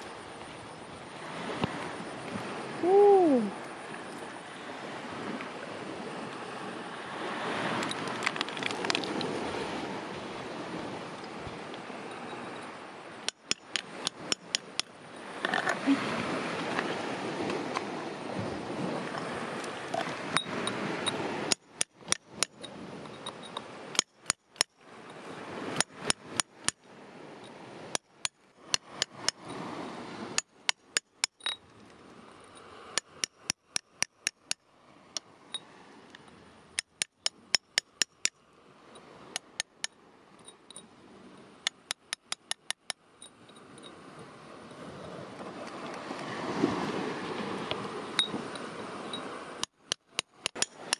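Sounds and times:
hammer tapping steel chisel on rock: 13.2s - 14.9s, 21.5s - 22.7s, 23.5s - 24.8s, 25.8s - 26.8s, 27.9s - 29.4s, 30.4s - 31.6s, 32.9s - 34.6s, 36.8s - 38.4s, 39.4s - 40.0s, 41.7s - 43.0s, 49.6s - 50.9s.

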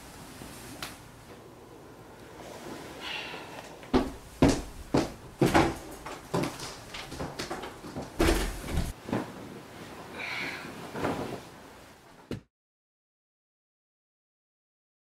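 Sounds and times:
bedclothes rustling: 3.9s - 11.9s
dull thump: 8.2s - 8.9s.

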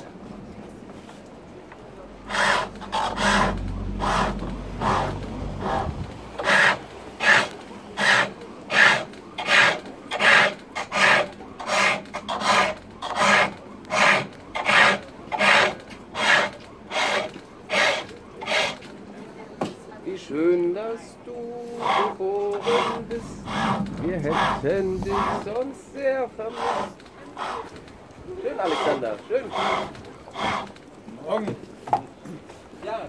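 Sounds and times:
lathe tool rasping on wood: 2.3s - 18.8s, 21.8s - 25.7s, 26.4s - 27.7s, 28.5s - 30.8s
low rumble: 3.2s - 6.4s.

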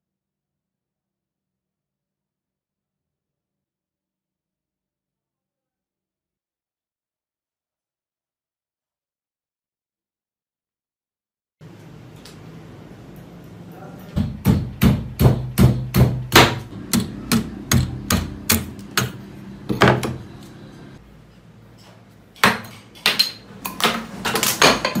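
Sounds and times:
adze chopping into wood: 14.5s - 19.2s.

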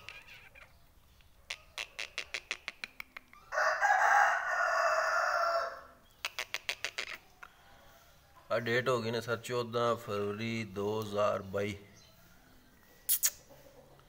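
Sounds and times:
bird giving harsh grating call: 6.2s - 7.3s.

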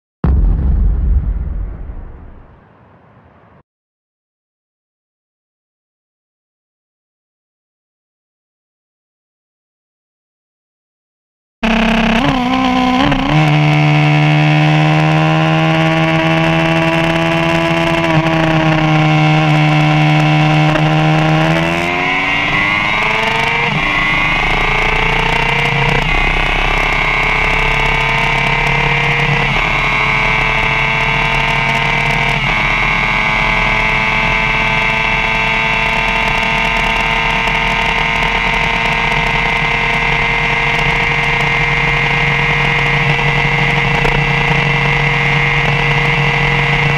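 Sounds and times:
wind rushing: 0.2s - 3.6s
motorcycle engine at full throttle: 11.6s - 46.9s.

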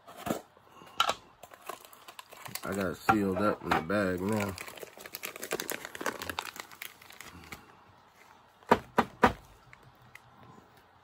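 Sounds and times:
plastic bag crinkling: 1.4s - 8.4s.

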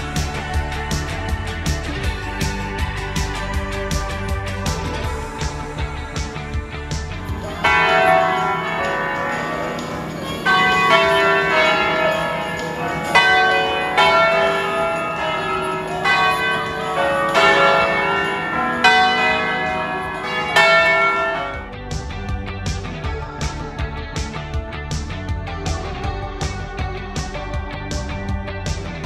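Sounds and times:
bells ringing in a peal: 7.2s - 21.8s.

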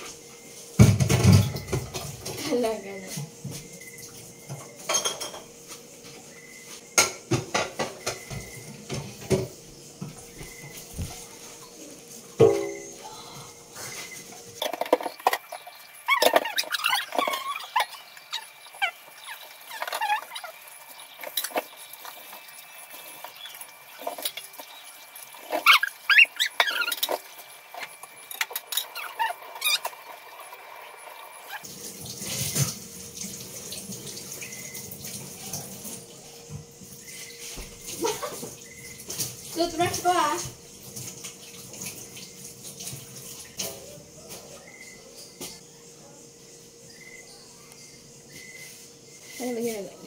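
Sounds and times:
dishes clinking and squeaking: 0.7s - 13.0s, 13.8s - 32.8s
water running from tap: 7.0s - 44.6s.

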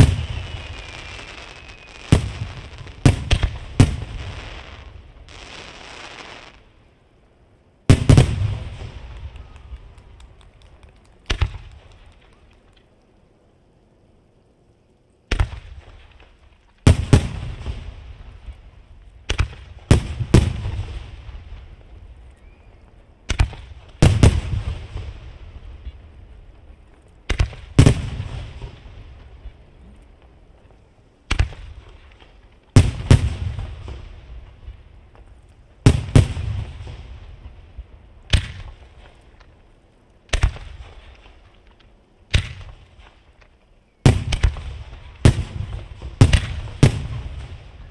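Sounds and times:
firework shells bursting: 0.0s - 6.6s, 40.2s - 47.9s
rolling echo: 0.0s - 7.0s.

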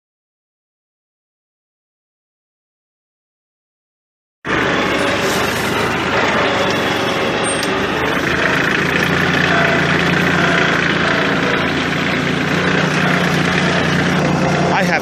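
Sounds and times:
tractor diesel engine running: 4.5s - 15.0s.

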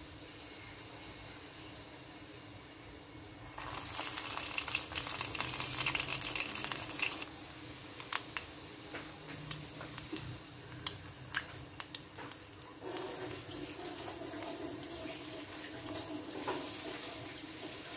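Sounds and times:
dough balls sizzling in oil: 3.4s - 17.9s
oil popping and crackling: 3.6s - 14.8s.

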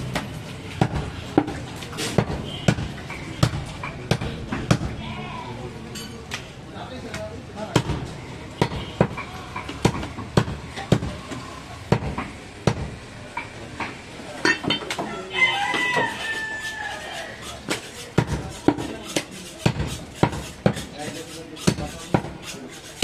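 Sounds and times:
cleaver chopping meat on wood: 0.1s - 5.0s, 7.7s - 11.3s, 11.9s - 14.0s, 15.7s - 23.0s
rooster crowing: 15.0s - 17.4s.

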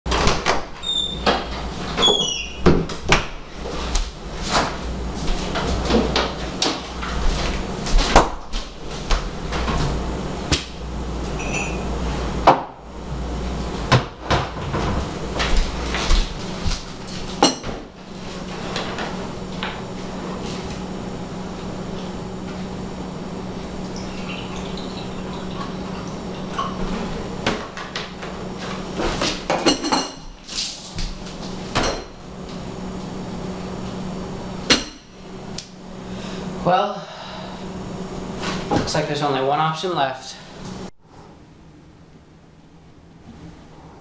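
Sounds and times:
steady low hum: 0.1s - 44.0s
short falling squeak: 0.8s - 2.7s
dishes knocking and clattering: 13.9s - 15.0s, 17.4s - 17.8s, 29.2s - 30.3s.

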